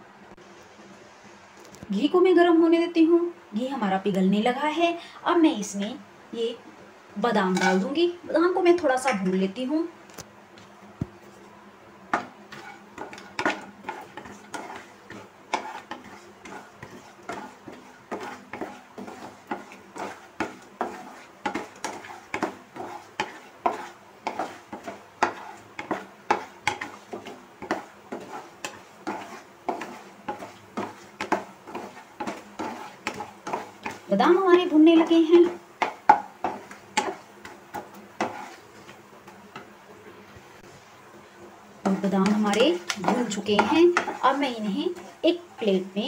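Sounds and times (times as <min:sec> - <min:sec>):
spatula scraping a pan: 0:07.5 - 0:08.0, 0:12.1 - 0:39.8, 0:41.8 - 0:46.0.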